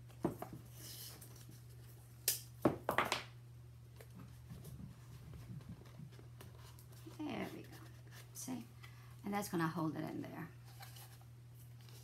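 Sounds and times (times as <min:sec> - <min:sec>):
soft rustling of cardboard: 0:03.9 - 0:08.9, 0:10.5 - 0:12.0.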